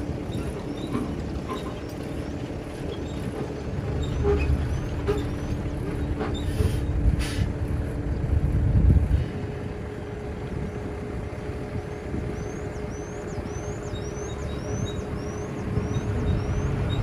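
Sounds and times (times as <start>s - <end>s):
dump truck engine rumbling: 0.0s - 17.0s
air brake hisses: 6.4s - 7.6s.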